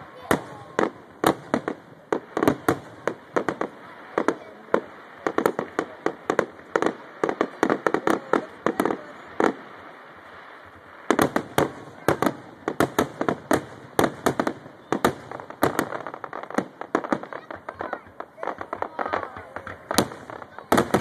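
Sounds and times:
fireworks bangs: 0:00.0 - 0:21.0.

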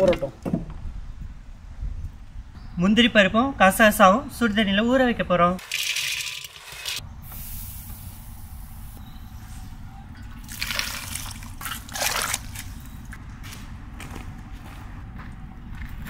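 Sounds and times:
hot water pouring and splashing: 0:05.6 - 0:07.0, 0:10.4 - 0:12.7
nuts rattling into steel pot: 0:05.6 - 0:07.0.

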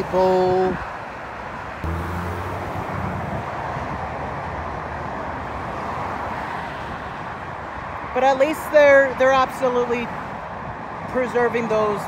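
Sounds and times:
roadway traffic noise: 0:00.0 - 0:12.0
vehicle engine hum: 0:01.4 - 0:08.1.

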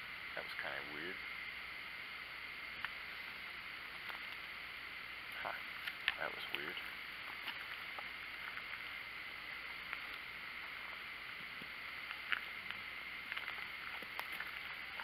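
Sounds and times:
steady high hiss: 0:00.0 - 0:15.0.

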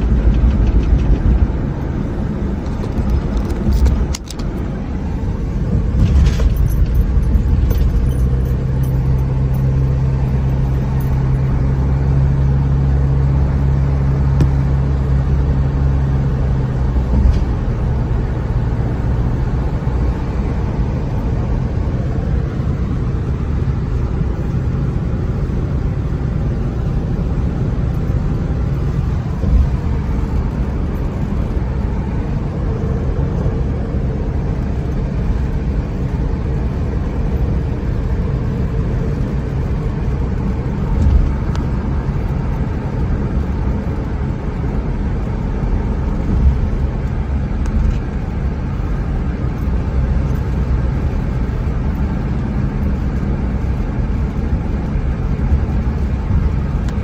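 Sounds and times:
car cabin road rumble: 0:00.0 - 0:57.0
brief low thumps: 0:14.3 - 0:14.9.

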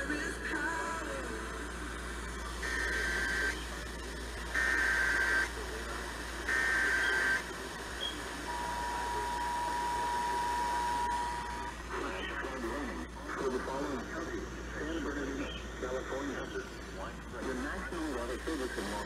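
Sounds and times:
data tone bursts: 0:02.4 - 0:05.5, 0:06.4 - 0:12.4
two-tone attention signal: 0:08.5 - 0:11.7.

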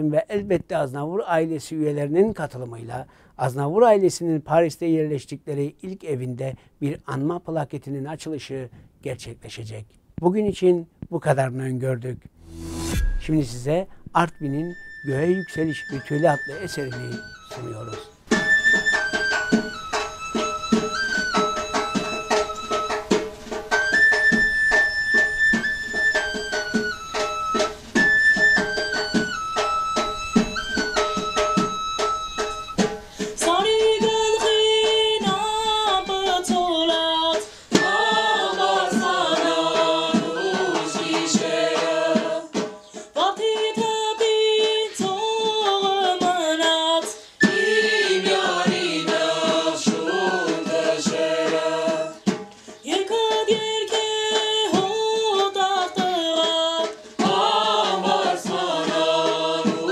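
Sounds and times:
held instrumental notes: 0:12.3 - 0:36.8
group of voices singing: 0:37.8 - 0:42.6, 0:47.5 - 0:52.2, 0:57.2 - 0:59.9.

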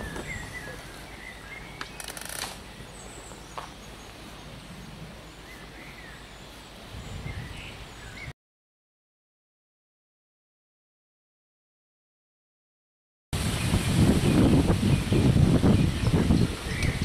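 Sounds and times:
small birds chirping: 0:00.0 - 0:08.3, 0:13.5 - 0:17.0.

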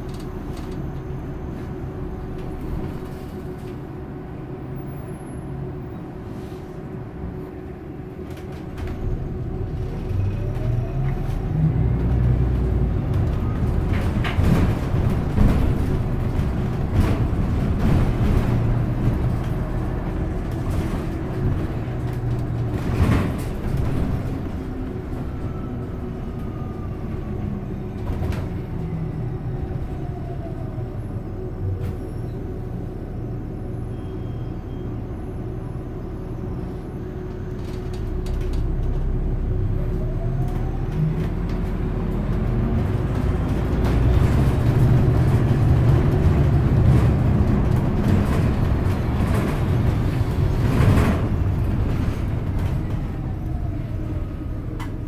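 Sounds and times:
bus engine and road rumble: 0:00.0 - 0:55.0
bus body knocks and rattles: 0:08.1 - 0:26.2, 0:27.4 - 0:28.9, 0:40.6 - 0:54.2.

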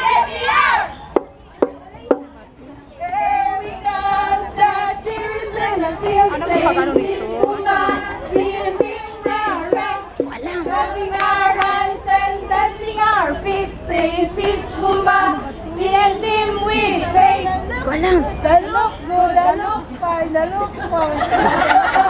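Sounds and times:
girls singing a cheer in unison: 0:02.6 - 0:17.7.

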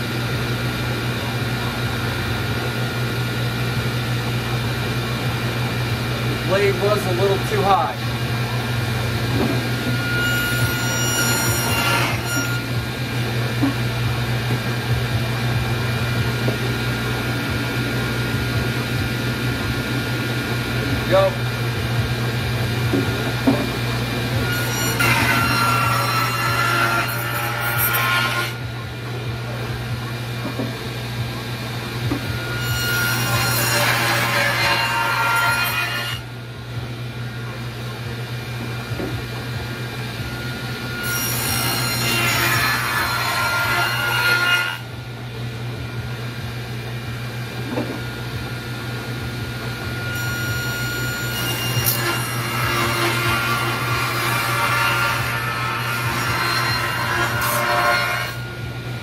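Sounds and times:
table saw motor hum: 0:04.9 - 0:28.6, 0:38.5 - 0:44.8, 0:49.4 - 0:58.6
saw blade cutting wood: 0:09.4 - 0:12.7, 0:24.4 - 0:28.6, 0:32.4 - 0:36.3, 0:40.3 - 0:44.8, 0:50.0 - 0:58.5.

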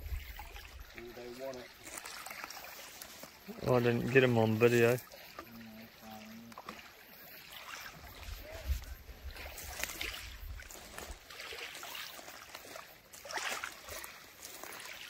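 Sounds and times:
wind rumbling on microphone: 0:00.0 - 0:01.0, 0:08.0 - 0:11.2
small waves lapping on gravel: 0:00.0 - 0:15.0.

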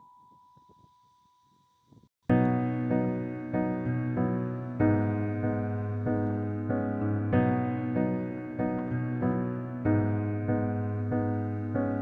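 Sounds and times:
keyboard music: 0:02.3 - 0:12.0.

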